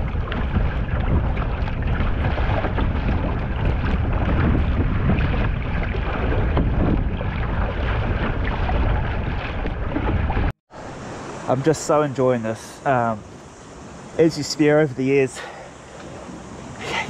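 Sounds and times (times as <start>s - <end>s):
wind buffeting microphone: 0.0s - 10.5s
paddle blades splashing: 0.0s - 17.0s
water rushing along hull: 0.0s - 17.0s.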